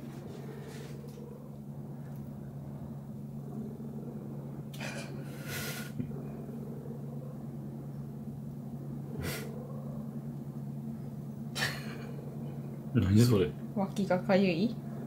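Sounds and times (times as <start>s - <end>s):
cat purring: 0.0s - 13.7s.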